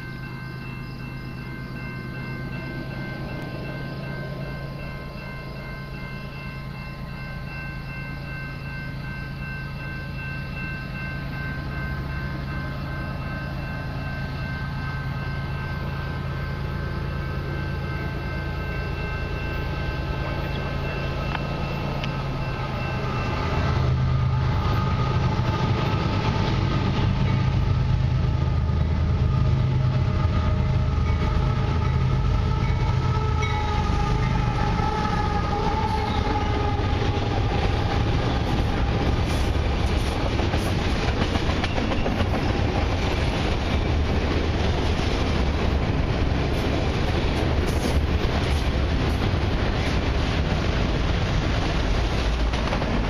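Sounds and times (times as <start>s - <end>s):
diesel locomotive engine rumble: 0.0s - 53.0s.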